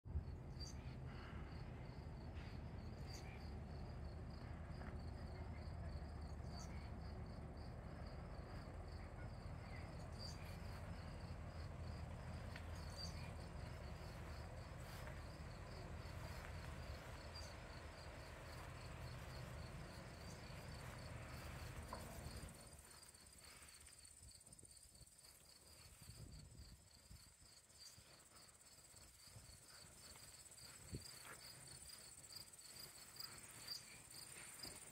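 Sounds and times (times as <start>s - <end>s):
low background rumble: 0.1s - 23.2s
crickets chirping: 0.1s - 34.9s.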